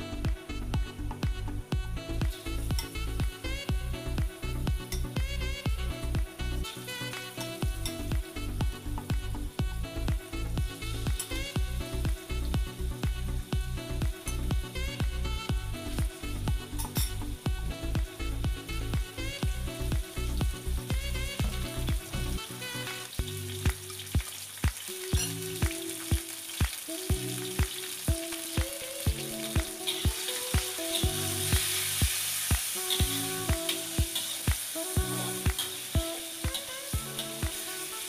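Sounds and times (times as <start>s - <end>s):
background music with a beat: 0.0s - 38.0s
meat sizzling in a wok: 2.3s - 3.0s, 19.6s - 38.0s.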